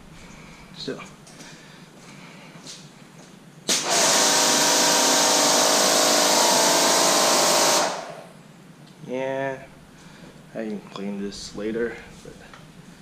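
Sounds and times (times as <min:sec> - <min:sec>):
pressure washer motor humming: 0:03.7 - 0:08.2.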